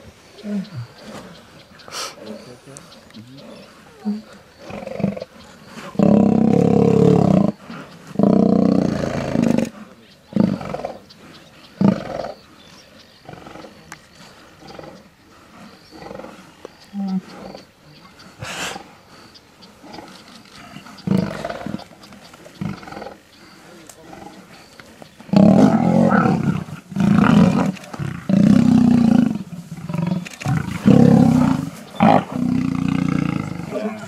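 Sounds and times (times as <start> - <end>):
lions growling and roaring: 0.0 - 34.0.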